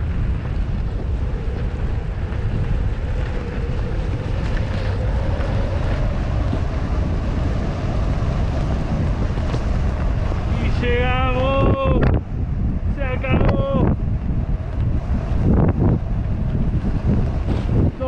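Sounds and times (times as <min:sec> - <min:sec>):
faint rising whine: 0:00.0 - 0:18.0
wind buffeting microphone: 0:00.0 - 0:18.0
skis hissing over snow: 0:00.7 - 0:11.2, 0:16.9 - 0:18.0.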